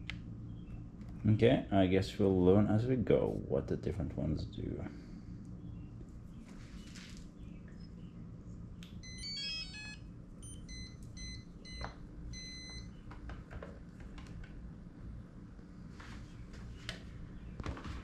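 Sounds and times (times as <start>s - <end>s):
low steady hum: 0.0s - 18.0s
electronic beeps: 9.0s - 12.9s.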